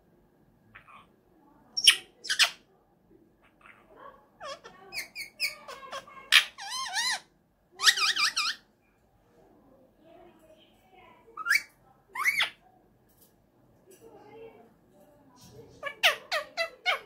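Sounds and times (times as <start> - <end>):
parakeet screeching and calling: 1.8 - 2.6, 3.4 - 8.6, 11.4 - 12.6, 15.8 - 17.0.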